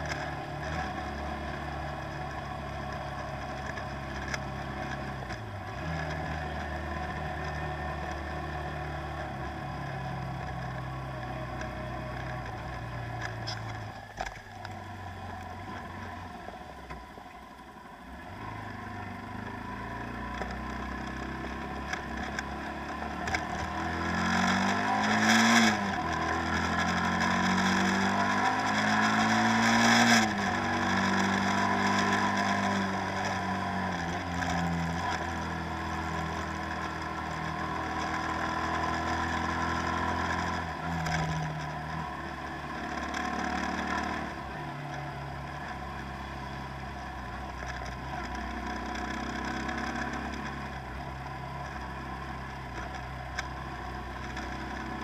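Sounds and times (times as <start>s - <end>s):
engine revving: 18.3s - 44.7s.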